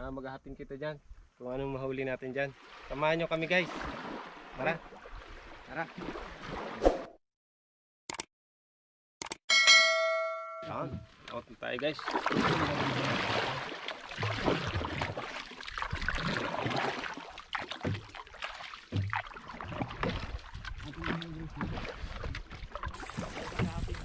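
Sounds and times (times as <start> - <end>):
paddle splashing through water: 2.5 - 7.1, 11.1 - 24.0.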